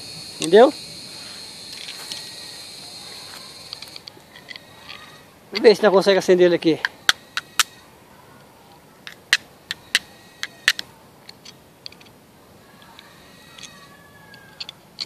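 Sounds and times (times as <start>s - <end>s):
steel striking flint clicks: 3.6s - 5.7s, 6.8s - 7.8s, 9.0s - 12.1s.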